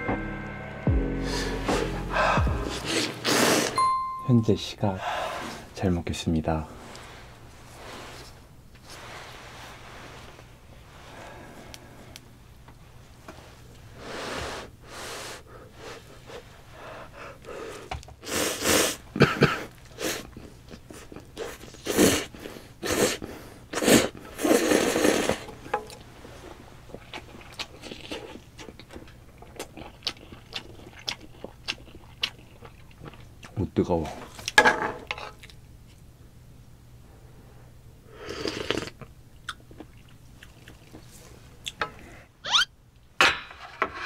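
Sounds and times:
breathy puffs: 1.1s - 3.8s
slurping noodles: 2.7s - 3.8s, 21.4s - 25.5s
quiet wet chewing: 26.9s - 34.6s, 38.4s - 42.0s.

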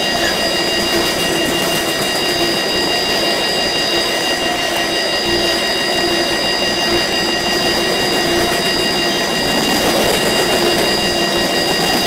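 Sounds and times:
steel wheels rolling on rail: 7.7s - 12.0s.

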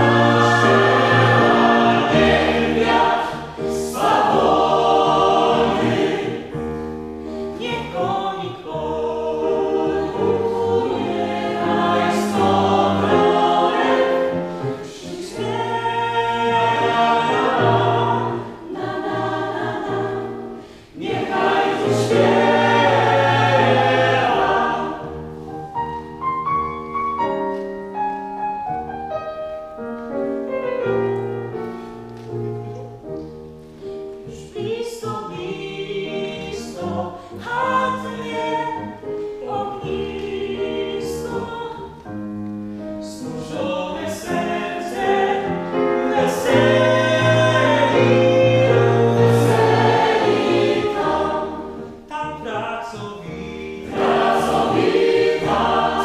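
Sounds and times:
mixed choir singing: 0.0s - 6.8s, 7.6s - 25.4s, 34.9s - 41.5s, 43.0s - 52.1s, 52.9s - 56.0s.

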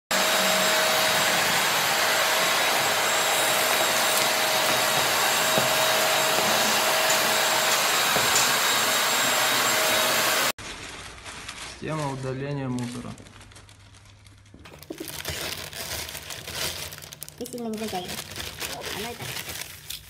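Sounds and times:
dust extractor whining: 0.1s - 10.5s.

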